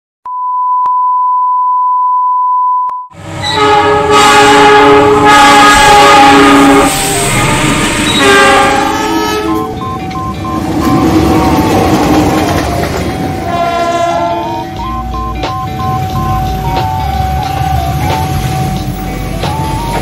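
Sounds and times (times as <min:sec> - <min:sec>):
high test-tone beep: 0:00.3 - 0:03.1, 0:09.4 - 0:11.9, 0:14.4 - 0:18.8, 0:19.4 - 0:20.0
passing trains rumbling: 0:03.2 - 0:20.0
locomotive horns: 0:03.3 - 0:20.0.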